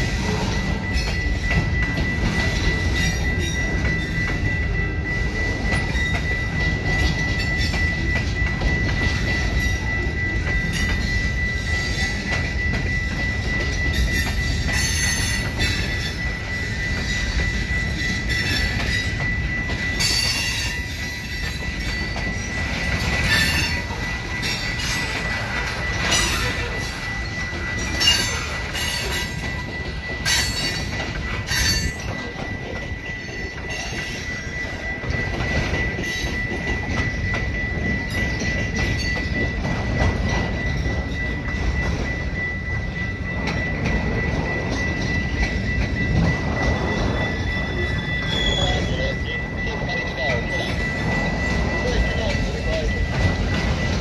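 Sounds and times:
freight train cars rumbling: 0.0 - 54.0
high-pitched wheel squeal: 44.8 - 52.8.

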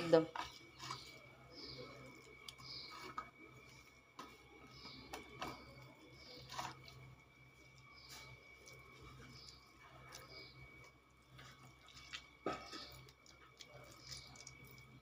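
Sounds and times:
wet squishing: 0.4 - 3.2, 6.2 - 15.0.

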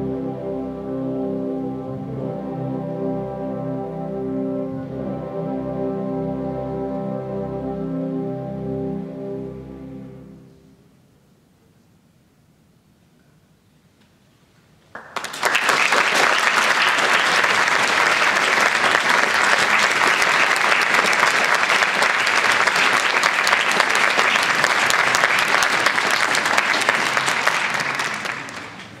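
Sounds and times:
audience applauding: 14.9 - 29.0.

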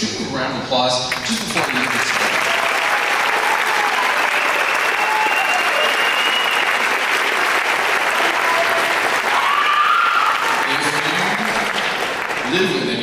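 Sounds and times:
audience applauding: 1.1 - 13.0.

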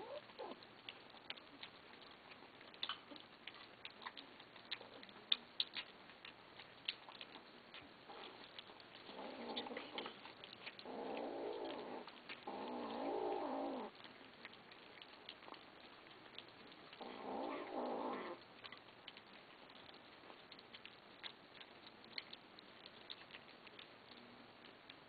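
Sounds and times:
kittens growling: 0.0 - 0.6, 8.1 - 14.1, 14.7 - 18.4
clicks and crunches of eating: 0.0 - 25.0.

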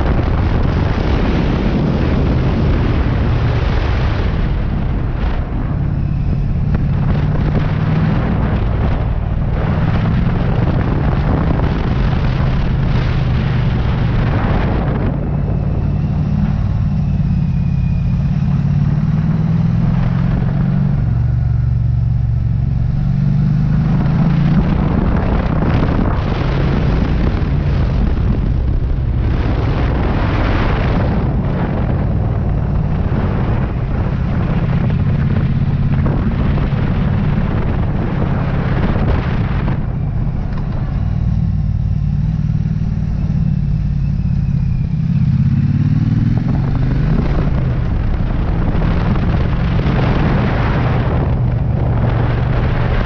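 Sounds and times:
motorcycle engine running: 0.0 - 53.0
wind rushing over microphone: 0.0 - 53.0.

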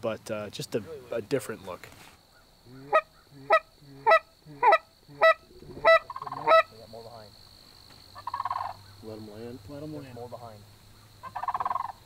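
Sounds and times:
goose honking: 2.7 - 6.8, 8.2 - 8.8, 11.2 - 12.0
buzzy bird call: 8.1 - 9.1.

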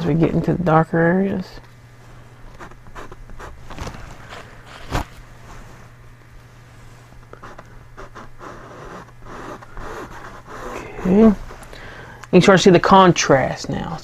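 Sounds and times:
faint low hum: 0.0 - 14.0.

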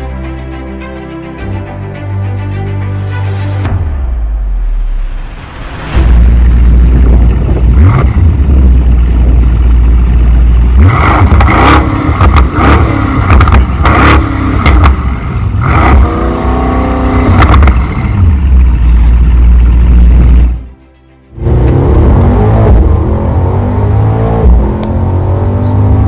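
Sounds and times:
car engine revving: 6.0 - 20.6, 21.4 - 26.0.

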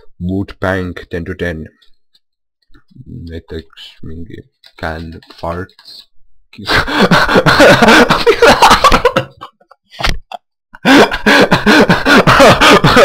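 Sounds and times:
man laughing loudly: 6.7 - 13.0.

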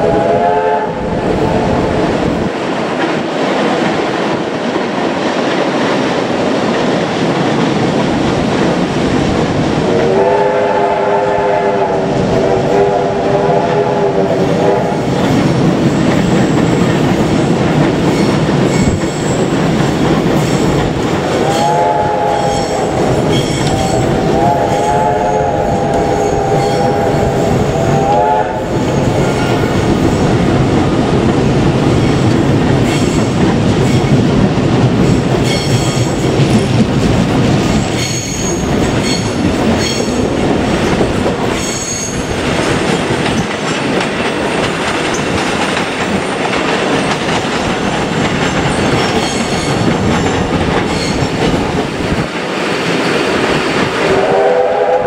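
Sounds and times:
steam train whistle: 0.0 - 1.7, 9.9 - 15.1, 21.4 - 29.8, 54.0 - 55.0
train wheels clattering and squealing: 14.9 - 30.4, 31.9 - 52.2.

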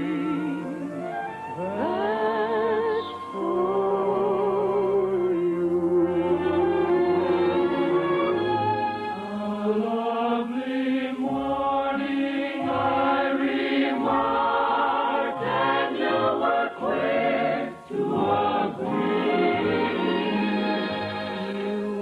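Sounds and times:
choir with orchestra: 0.0 - 22.0.

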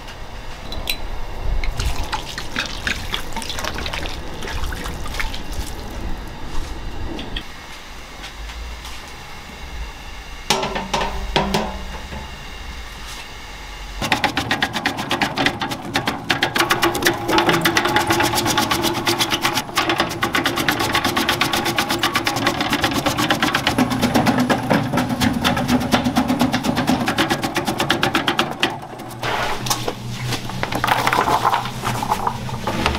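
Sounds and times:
low hum: 0.0 - 32.9
fast steady clattering: 14.0 - 29.3.

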